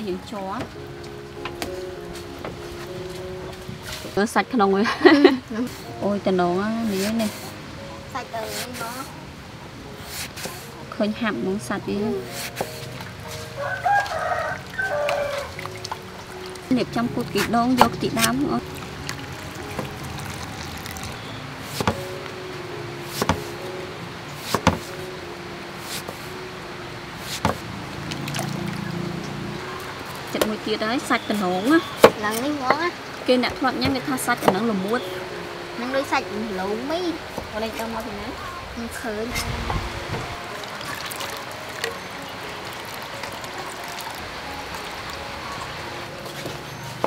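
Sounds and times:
steady background hiss: 0.0s - 13.6s, 15.5s - 47.0s
liquid trickling through strainer: 12.8s - 22.0s, 27.4s - 29.0s, 39.4s - 45.8s.

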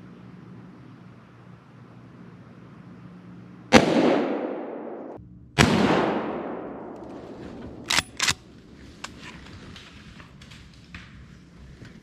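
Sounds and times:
rifle shots echoing: 3.7s - 8.5s.

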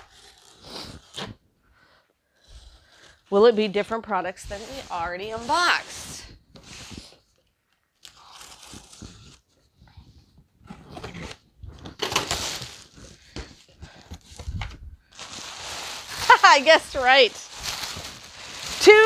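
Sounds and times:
box cutter slitting tape: 8.0s - 9.4s, 10.8s - 13.1s
plastic wrapping crinkling: 15.0s - 19.0s.

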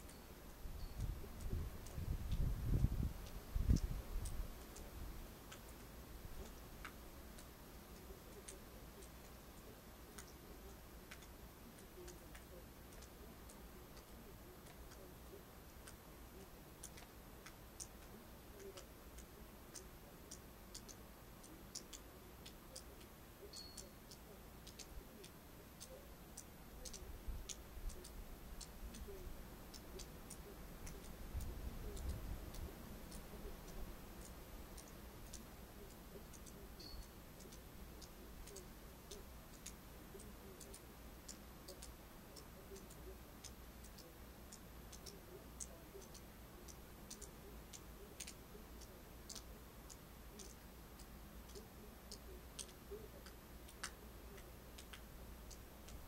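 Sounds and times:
light ticks: 0.0s - 56.0s
low wind rumble: 0.6s - 5.2s.

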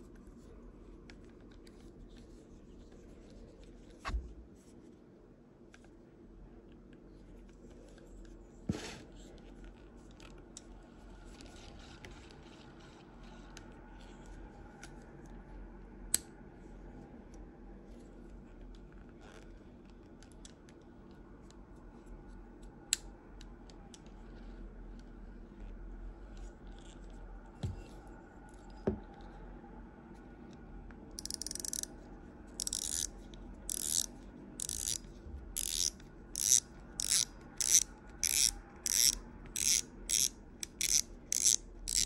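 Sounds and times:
fishing reel ticking and scraping: 31.2s - 31.9s, 32.6s - 33.1s, 33.7s - 35.0s, 35.6s - 42.0s
sharp reel clicks: 31.2s - 31.9s, 32.6s - 33.1s, 33.7s - 35.0s, 35.6s - 42.0s.

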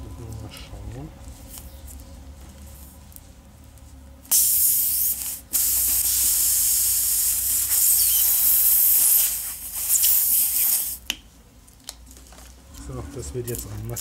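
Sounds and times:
air hissing out of tyre: 4.3s - 11.0s.

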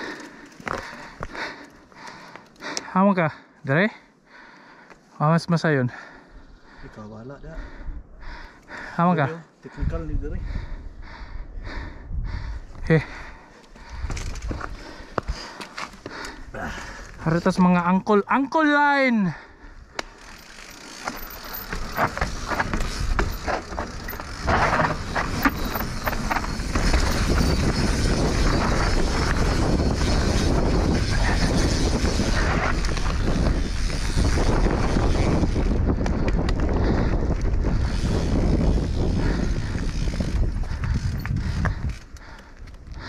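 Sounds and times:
bike rattling and clicking: 0.0s - 2.9s, 13.1s - 18.0s, 19.7s - 43.0s
bike tyres rumbling over dirt: 20.1s - 43.0s.

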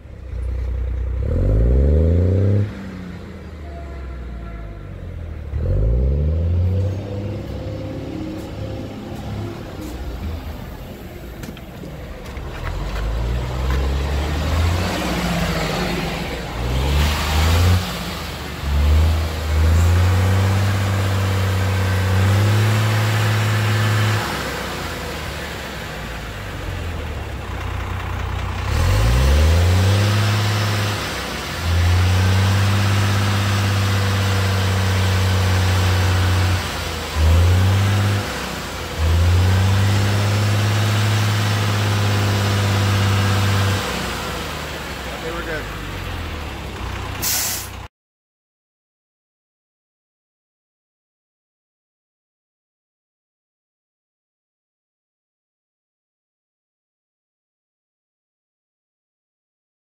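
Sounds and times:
diesel bus engine revving: 0.0s - 47.9s.

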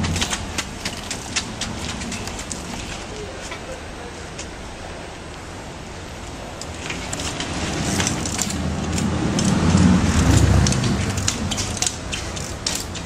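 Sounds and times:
passing vehicle rumble: 0.0s - 13.0s
sharp clicks and crackles: 6.6s - 13.0s.

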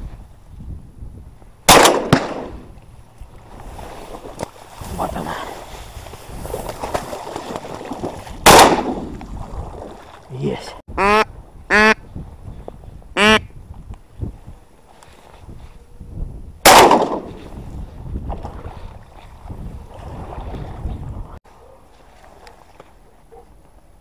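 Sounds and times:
shotgun shot: 1.7s - 2.7s, 8.4s - 9.2s, 16.6s - 17.4s
duck quacks: 11.0s - 12.0s, 13.2s - 13.5s.

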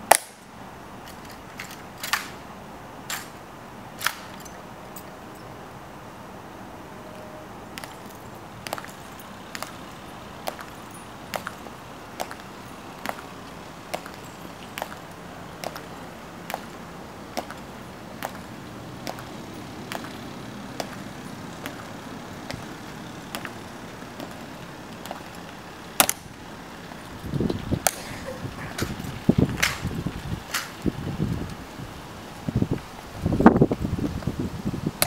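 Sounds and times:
heel clicks on stone: 17.4s - 18.4s.

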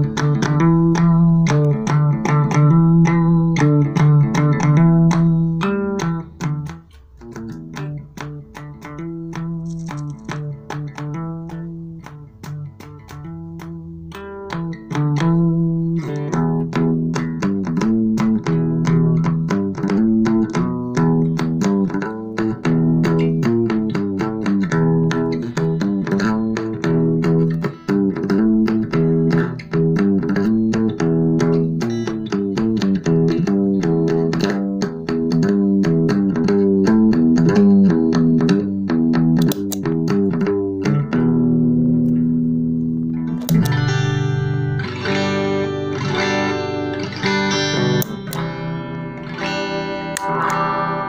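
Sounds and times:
electric guitar picked notes: 0.0s - 51.0s
pedal footswitch press: 39.4s - 39.9s, 43.4s - 43.8s.

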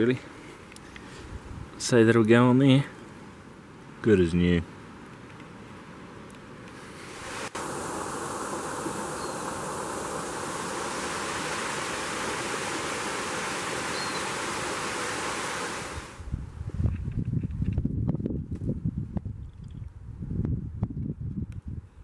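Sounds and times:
steady rushing hiss: 0.0s - 16.4s.

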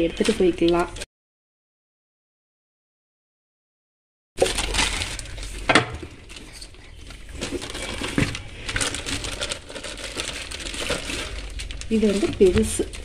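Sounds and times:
plastic wrapping crinkling: 0.0s - 1.0s, 4.4s - 13.0s.

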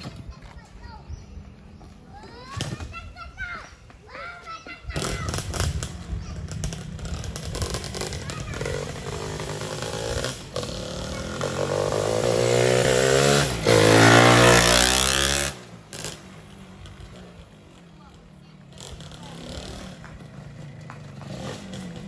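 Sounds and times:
motorcycle engine revving: 4.9s - 22.0s.

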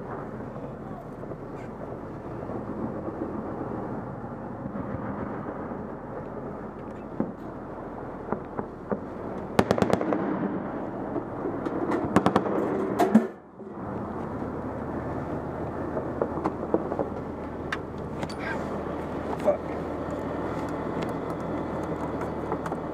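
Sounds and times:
armoured vehicle engine running: 13.7s - 22.9s.

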